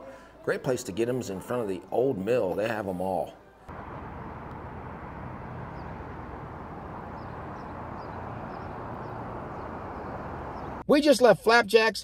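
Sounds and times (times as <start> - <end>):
road traffic hum: 3.7 - 10.8.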